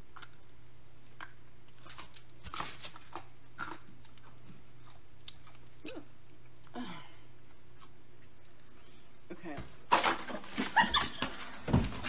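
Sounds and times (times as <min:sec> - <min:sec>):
person biting and chewing: 0:00.0 - 0:06.7.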